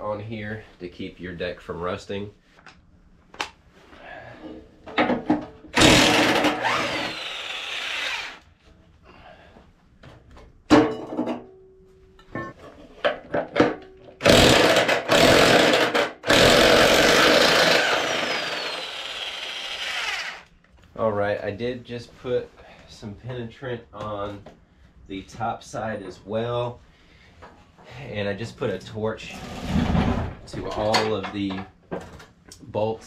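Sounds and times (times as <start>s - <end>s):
electric drill whining: 5.8s - 8.4s, 14.2s - 20.5s.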